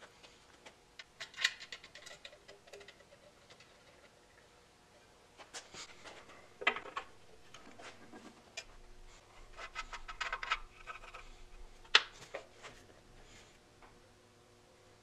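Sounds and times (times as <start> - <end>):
metal parts scraping and ticking: 1.1 - 4.2, 9.5 - 11.4.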